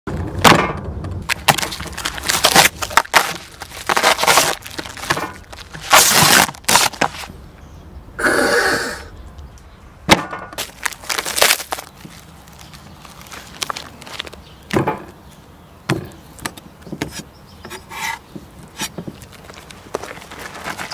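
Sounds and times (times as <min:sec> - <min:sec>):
plastic film crackling: 0:01.3 - 0:07.3, 0:10.6 - 0:14.4.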